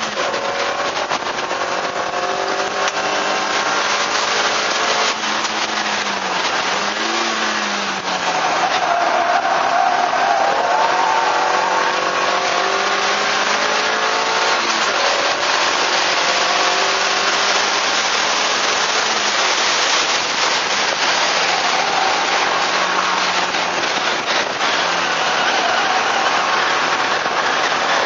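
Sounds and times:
car engine accelerating: 0.0s - 28.0s
wind and road noise: 0.0s - 28.0s.

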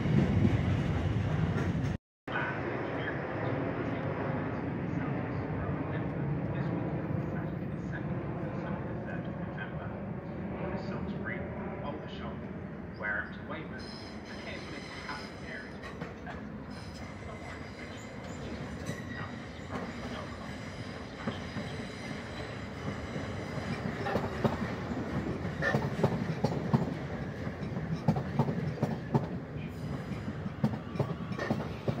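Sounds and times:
train wheels rumbling on rail: 0.0s - 2.0s, 13.8s - 32.0s.

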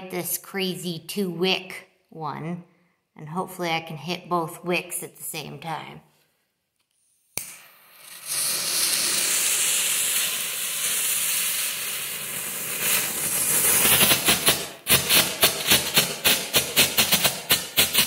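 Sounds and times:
firework hissing: 7.4s - 18.0s
firework rapid sharp cracks: 7.4s - 18.0s.

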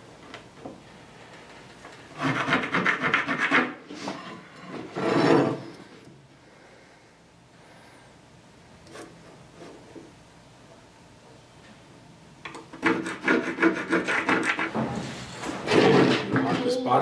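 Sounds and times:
metal square scraping wood board: 2.1s - 5.7s, 12.7s - 16.4s.

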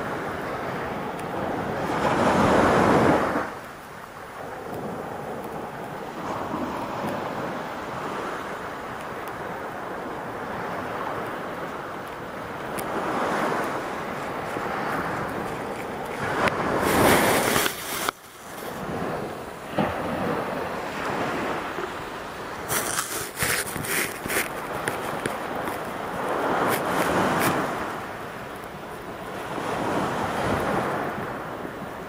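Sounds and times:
surf washing on a beach: 0.0s - 32.0s
wind on the microphone: 0.0s - 32.0s
crackles: 12.0s - 18.8s, 22.6s - 29.1s.

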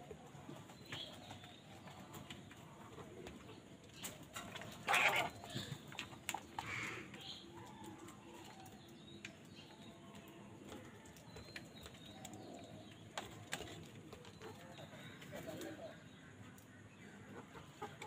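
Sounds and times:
crow cawing: 6.7s - 7.1s.

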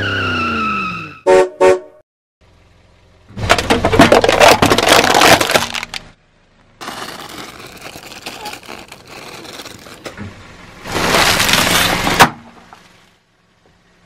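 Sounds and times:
car horn toots: 1.1s - 2.0s
tyre crushing drink cans: 3.5s - 6.0s.

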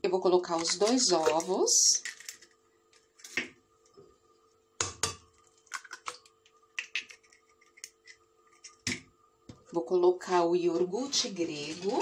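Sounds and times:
egg cracking on glass jar: 4.8s - 9.1s.

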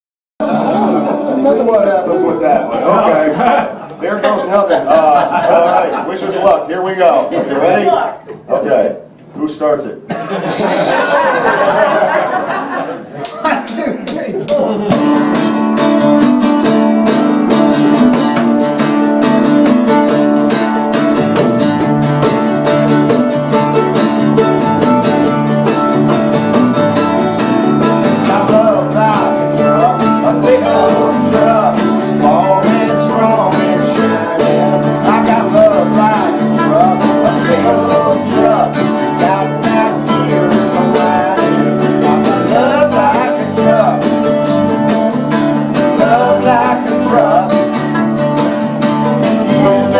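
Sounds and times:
acoustic country band playing: 0.4s - 13.1s, 14.3s - 49.9s
man singing: 27.8s - 47.9s, 49.1s - 49.9s.

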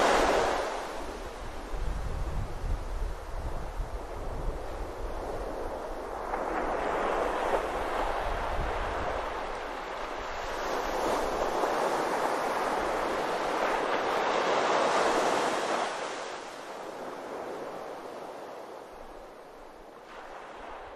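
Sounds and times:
ocean waves washing onto beach: 0.0s - 20.9s.

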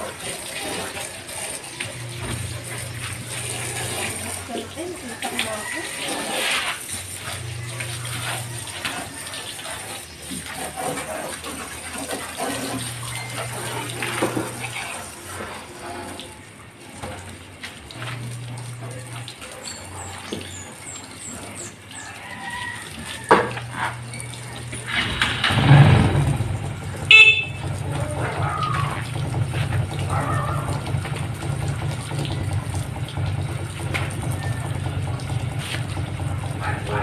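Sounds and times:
background traffic: 0.0s - 37.0s
hose spraying water on a truck: 0.0s - 37.0s
vehicle passing loudly: 24.7s - 31.9s
car horn toot: 27.0s - 27.9s.

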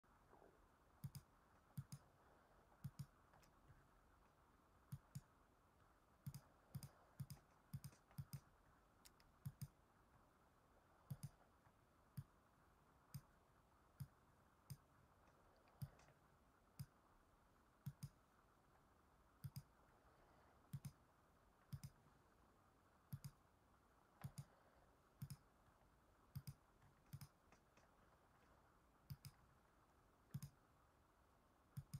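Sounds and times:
faint room hiss: 0.0s - 31.9s
computer mouse clicking: 1.0s - 2.2s, 2.8s - 5.4s, 6.2s - 9.8s, 11.0s - 12.4s, 13.0s - 17.0s, 17.8s - 18.2s, 19.4s - 19.8s, 20.6s - 21.0s, 21.6s - 22.1s, 23.1s - 23.4s, 24.1s - 25.6s, 26.3s - 29.6s, 30.3s - 30.6s.

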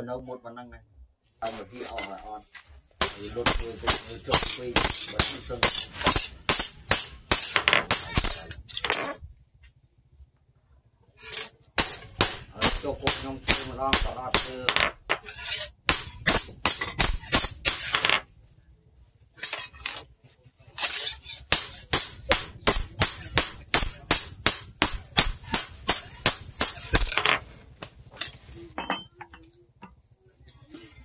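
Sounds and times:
hammer striking blade on anvil: 3.0s - 9.1s, 11.2s - 18.1s, 20.8s - 27.4s
scattered knocks: 21.5s - 27.4s.

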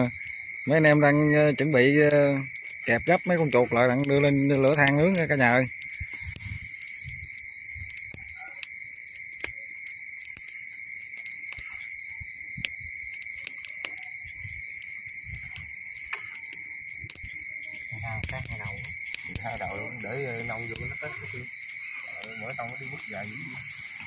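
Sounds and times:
night insects chorus: 0.0s - 24.0s.

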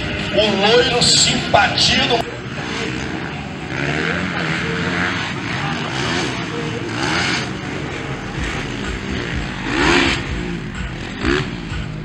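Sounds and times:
motocross engines revving: 0.0s - 12.0s.

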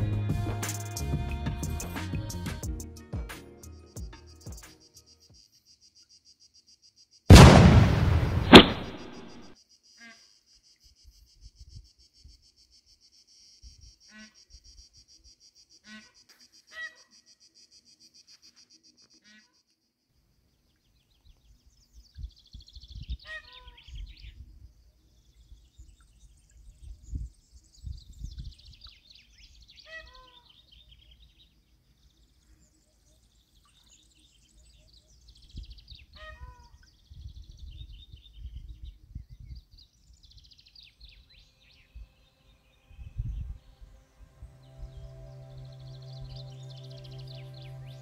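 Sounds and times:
descending bird song run: 7.3s - 9.6s, 20.5s - 48.0s
birds twittering: 20.6s - 48.0s
low rumble: 43.0s - 48.0s.

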